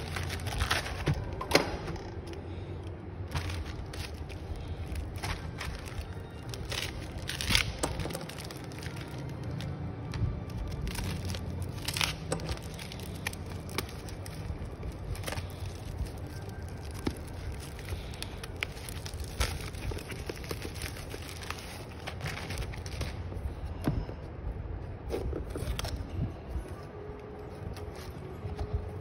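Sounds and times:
plastic wrap crinkling: 0.0s - 23.7s.

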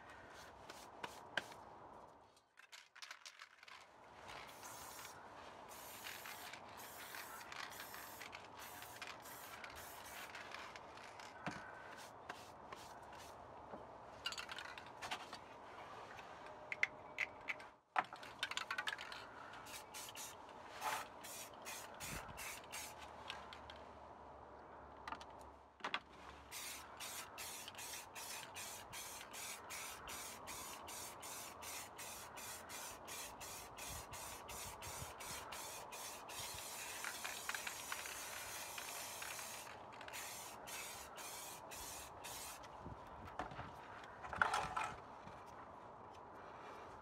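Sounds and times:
spray can hissing: 4.5s - 5.1s, 5.7s - 10.3s, 19.7s - 20.3s, 21.2s - 23.0s, 26.5s - 42.6s.

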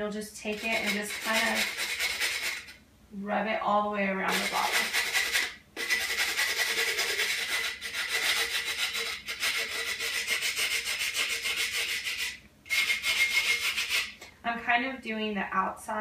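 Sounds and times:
sanding sponge scraping glass: 0.4s - 2.8s, 4.3s - 14.2s.

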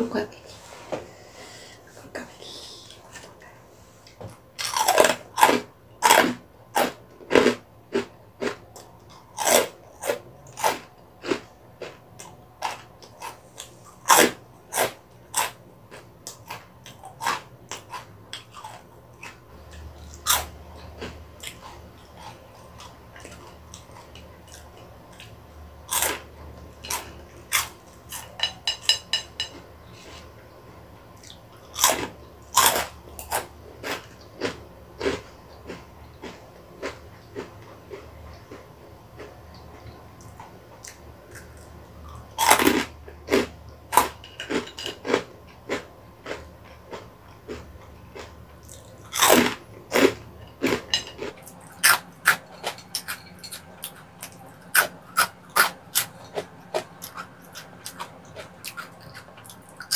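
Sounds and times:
soft chewing: 7.3s - 59.9s
crunching crispy snacks: 41.3s - 59.9s.

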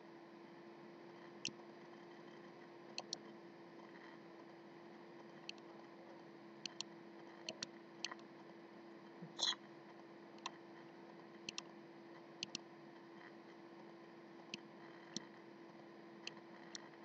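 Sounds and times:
computer mouse clicking: 12.4s - 12.6s.

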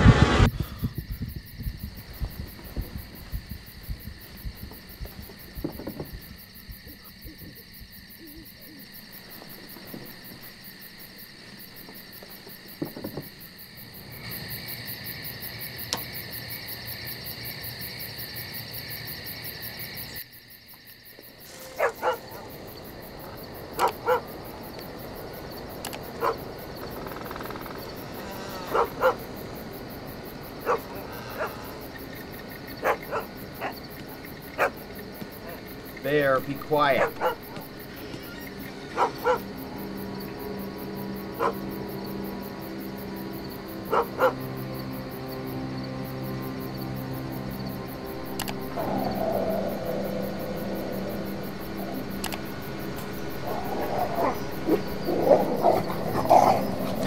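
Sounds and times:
dog barking: 21.6s - 22.6s, 23.8s - 24.4s, 26.2s - 26.5s, 28.6s - 29.3s, 30.6s - 31.7s, 32.8s - 33.8s, 34.5s - 34.8s, 36.8s - 37.7s, 38.9s - 39.6s, 41.4s - 41.7s, 43.9s - 44.4s, 53.5s - 57.0s.

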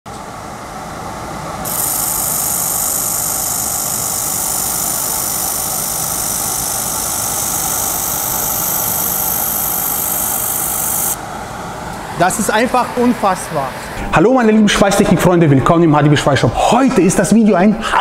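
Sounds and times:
steady low hum: 0.1s - 17.9s
laser welder hissing: 1.6s - 14.0s.

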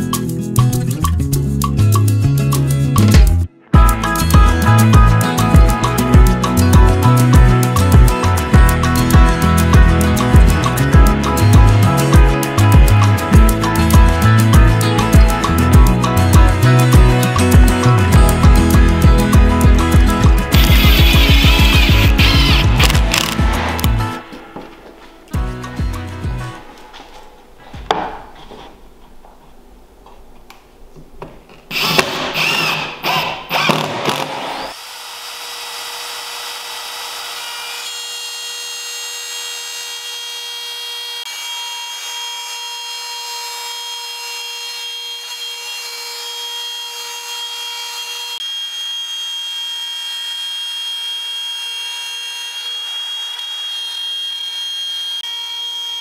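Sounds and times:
trim router whining: 20.5s - 24.4s, 31.7s - 56.0s.

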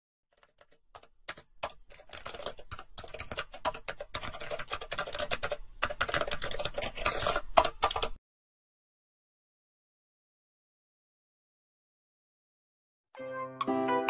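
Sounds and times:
computer keyboard typing: 0.3s - 8.2s.

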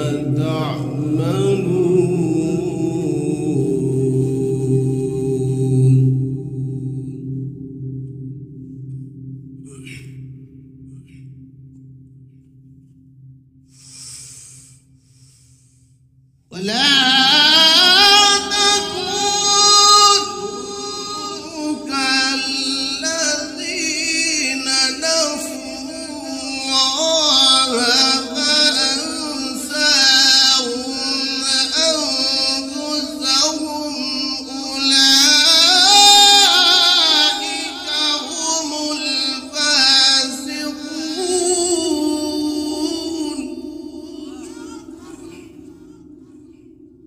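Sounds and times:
man reciting melodically: 0.0s - 7.3s, 16.5s - 46.7s.

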